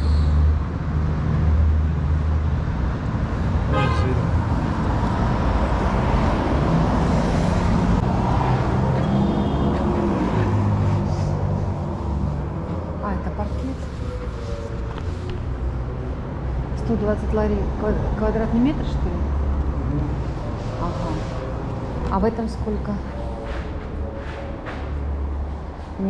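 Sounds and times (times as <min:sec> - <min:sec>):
car traffic rumble: 0:00.0 - 0:26.0
brief horn toot: 0:03.7 - 0:04.2, 0:09.0 - 0:10.0.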